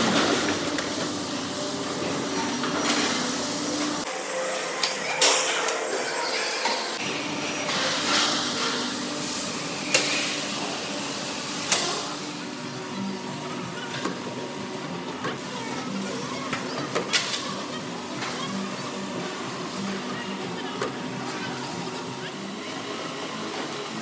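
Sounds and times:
machinery humming and hissing: 0.0 - 24.0.

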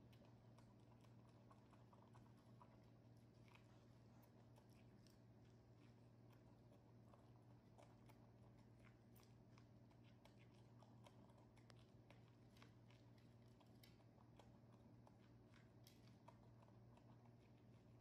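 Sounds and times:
monkeys gnawing and chewing corn: 0.0 - 18.0.

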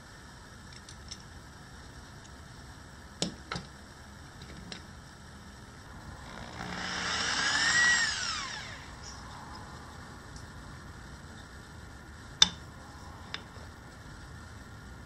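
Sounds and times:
electric drill boring wood: 6.1 - 9.2.

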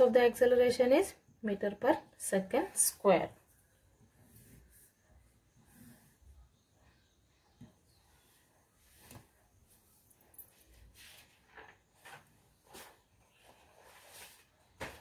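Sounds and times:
soft rustles or breaths: 8.1 - 14.6.

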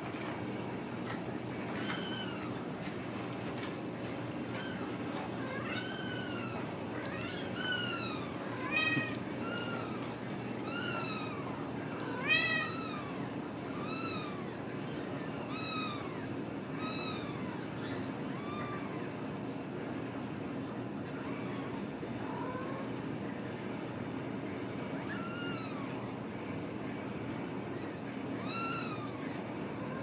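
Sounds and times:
kittens meowing: 1.6 - 2.8, 4.0 - 19.2, 21.1 - 23.0, 25.0 - 26.3, 27.7 - 30.0.

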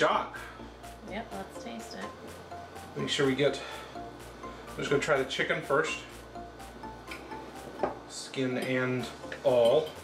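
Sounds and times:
soft background music: 0.0 - 10.0
cutlery clinking on a plate: 8.6 - 10.0.

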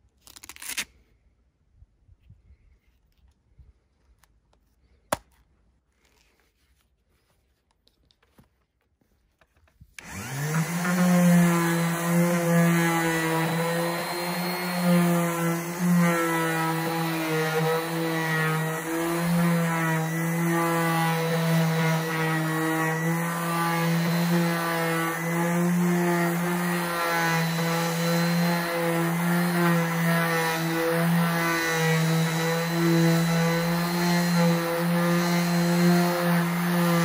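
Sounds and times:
orbital sander sanding wood: 10.0 - 37.0.

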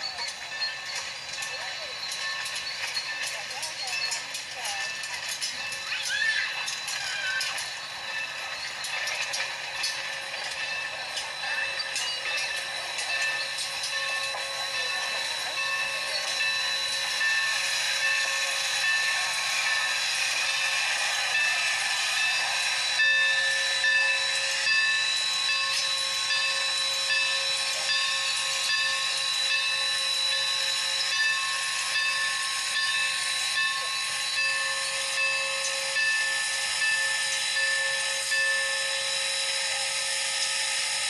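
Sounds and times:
steady whistling tones: 0.0 - 41.0
steam locomotive hissing: 0.0 - 41.0.

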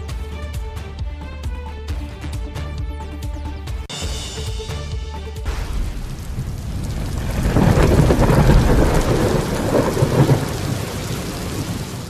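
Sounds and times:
heavy rain: 5.5 - 12.0
thunder rumbling: 5.5 - 12.0.

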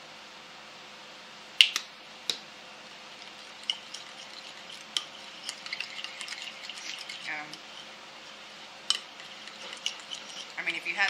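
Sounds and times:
spoon clinking against bowl: 8.9 - 10.6.

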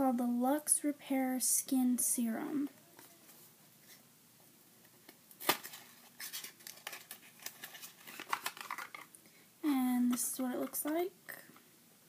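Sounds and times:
cardboard box snap: 5.4 - 5.8
cardboard rustling and scraping: 5.4 - 9.0.

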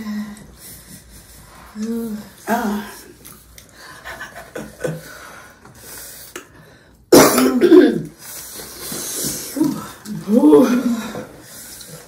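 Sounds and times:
woman coughing loudly: 7.1 - 8.1.

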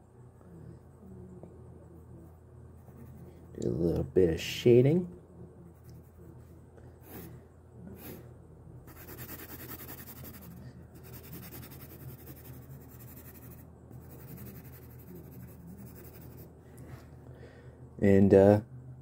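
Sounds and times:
pencil scratching on paper: 2.8 - 3.4, 8.9 - 16.5.

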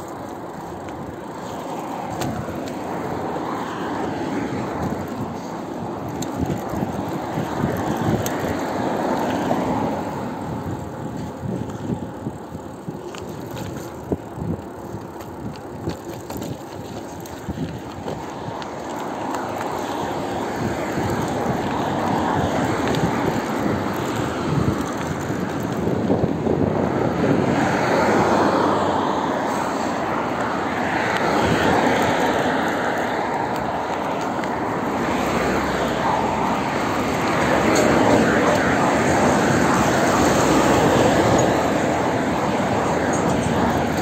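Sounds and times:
bicycle clicks: 0.0 - 44.0
bicycle rattling: 0.0 - 44.0
bicycle tyres rolling on road: 0.0 - 44.0.

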